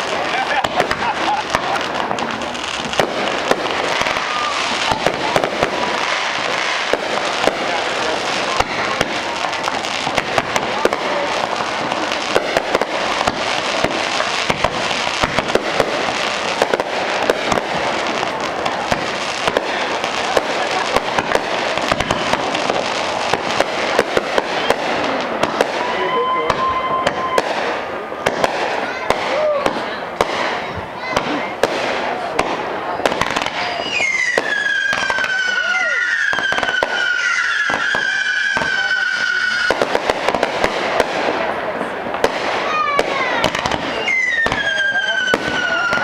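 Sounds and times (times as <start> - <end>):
fireworks bangs and pops: 0.0 - 46.0
fireworks crackle rumble: 0.0 - 46.0
steady high tone: 25.9 - 27.5.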